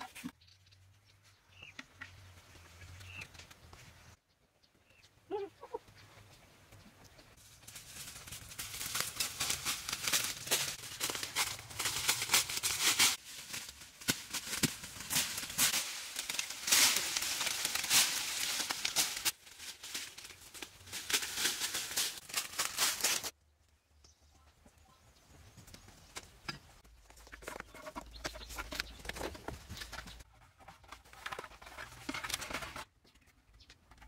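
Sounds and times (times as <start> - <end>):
dry leaves crunching: 7.4 - 23.4
twigs rustling and snapping: 7.5 - 23.4.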